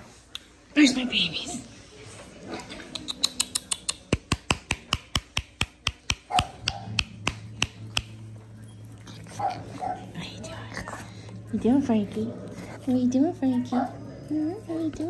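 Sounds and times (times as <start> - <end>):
person clicking tongue: 2.9 - 4.3.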